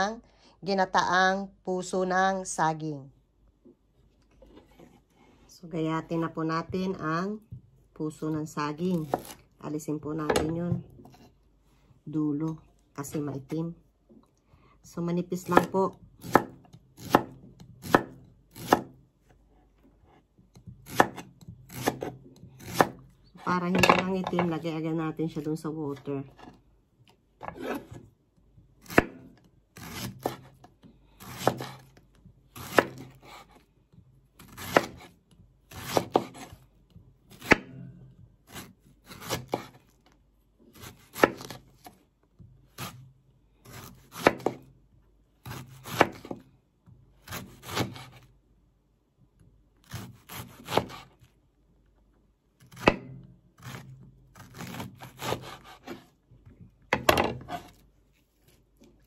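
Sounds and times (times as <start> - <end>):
knife slicing on chopping board: 20.8 - 23.0, 27.4 - 28.0, 31.2 - 31.9, 34.4 - 36.6, 38.5 - 39.9, 40.7 - 42.0, 49.8 - 51.2, 53.6 - 56.1, 57.4 - 57.8.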